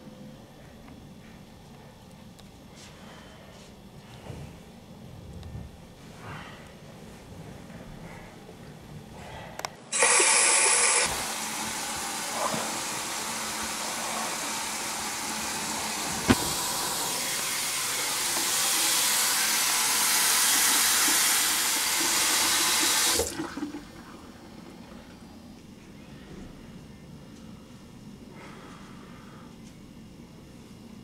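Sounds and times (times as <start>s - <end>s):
water rushing from sink tap: 10.0s - 25.2s.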